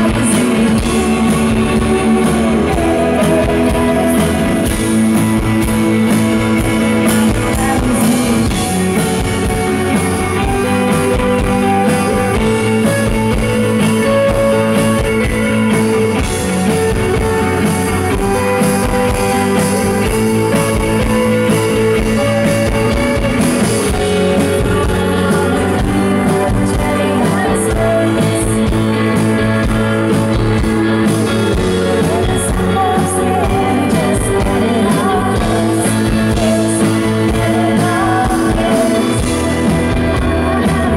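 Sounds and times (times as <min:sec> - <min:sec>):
woman singing: 0:00.0 - 0:05.6, 0:07.0 - 0:09.7, 0:22.0 - 0:29.8, 0:31.5 - 0:40.9
rock band playing live: 0:00.0 - 0:40.9.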